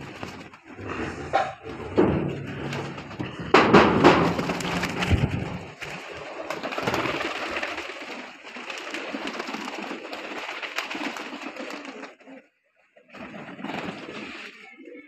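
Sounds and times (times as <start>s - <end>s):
pigeon wings flapping: 0.0s - 0.8s, 2.4s - 12.4s, 13.1s - 14.8s
metal door clattering open: 1.4s - 5.1s
pigeons cooing: 4.4s - 15.0s.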